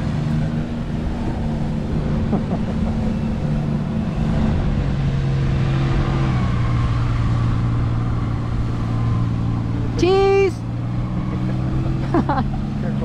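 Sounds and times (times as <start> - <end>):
wind buffeting microphone: 0.0 - 10.0
boat engine drone: 0.0 - 13.0.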